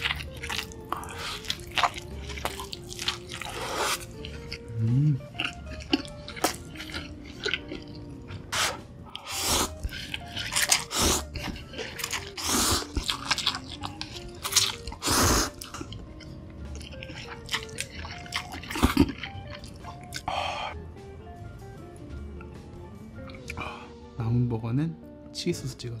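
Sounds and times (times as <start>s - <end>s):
slurping noodles: 0.0s - 15.9s
chewing with full mouth: 0.0s - 20.4s
soft background music: 0.0s - 26.0s.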